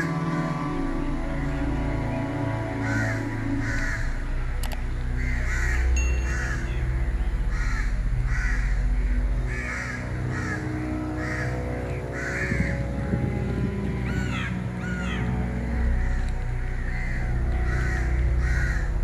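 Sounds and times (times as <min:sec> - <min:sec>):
background music: 0:00.0 - 0:19.0
low rumble: 0:00.0 - 0:19.0
crows cawing: 0:02.8 - 0:04.2, 0:05.2 - 0:13.3, 0:14.0 - 0:19.0.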